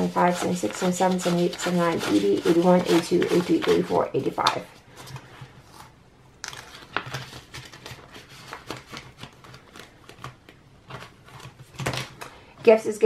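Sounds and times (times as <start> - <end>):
paper banknotes rustling: 0.0 - 5.5, 6.4 - 12.4
plastic envelope crinkling: 6.4 - 12.4.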